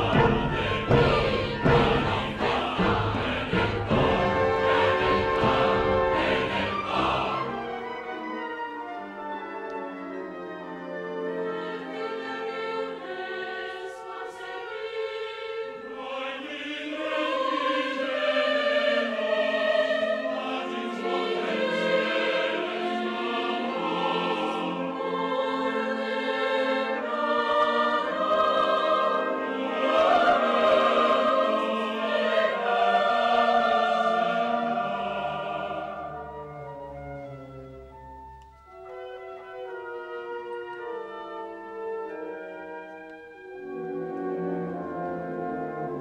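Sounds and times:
mixed choir singing: 0:00.0 - 0:08.1, 0:11.2 - 0:36.8
symphonic wind band: 0:00.0 - 0:46.0.

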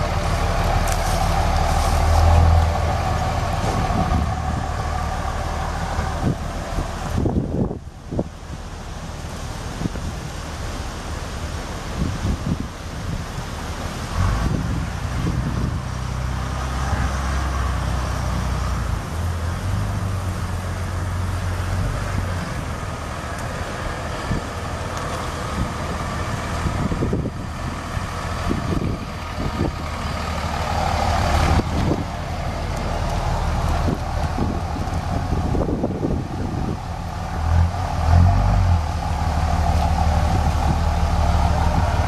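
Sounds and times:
diesel engine running: 0:00.0 - 0:42.0.

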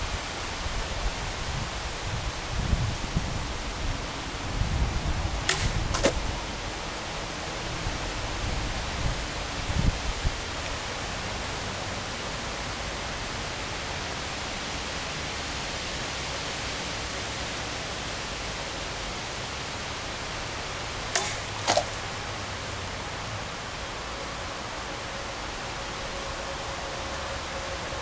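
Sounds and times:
outdoor background hiss: 0:00.0 - 0:28.0
shot striking plastic bottle: 0:05.5 - 0:06.2, 0:21.2 - 0:22.1.

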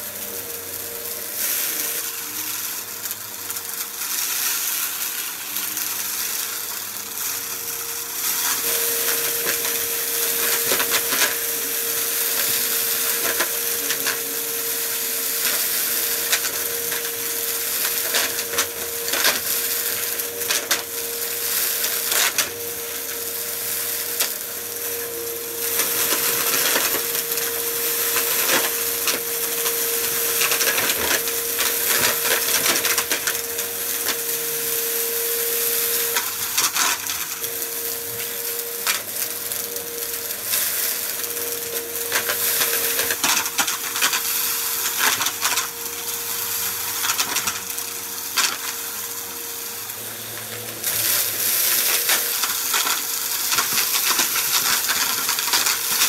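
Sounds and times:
vacuum cleaner whining: 0:00.0 - 0:56.0
debris crackling and rattling: 0:25.6 - 0:34.3, 0:51.8 - 0:56.0.

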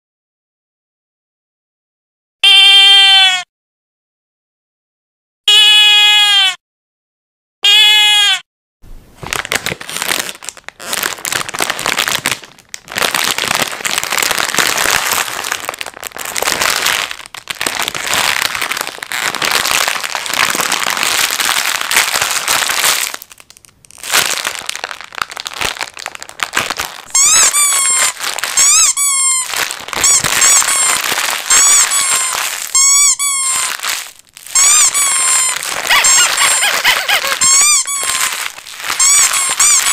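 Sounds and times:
bleat: 0:02.4 - 0:03.5, 0:05.5 - 0:06.6, 0:07.6 - 0:08.4
dense crinkling and crackling: 0:09.2 - 0:39.9
short high falling squeaks: 0:27.1 - 0:39.9.

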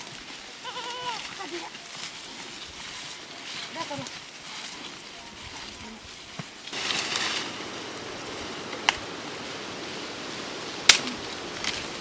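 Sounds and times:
dry sticks rustling: 0:00.0 - 0:12.0
steady hiss: 0:02.0 - 0:12.0
sharp crack: 0:10.8 - 0:11.9.

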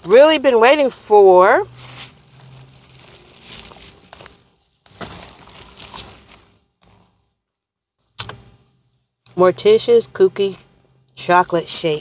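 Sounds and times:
paper and plastic crinkling: 0:01.7 - 0:07.1.

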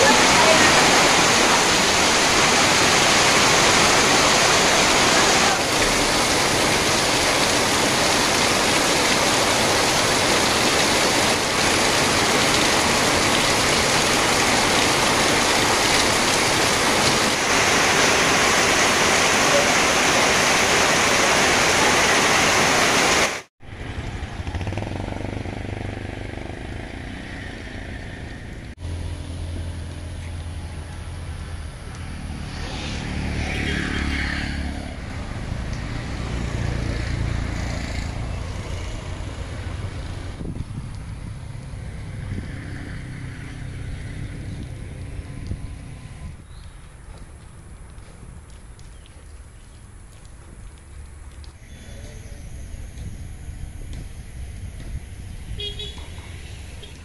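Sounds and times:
heavy rain pouring: 0:00.0 - 0:25.4
low engine hum: 0:23.7 - 0:33.3.

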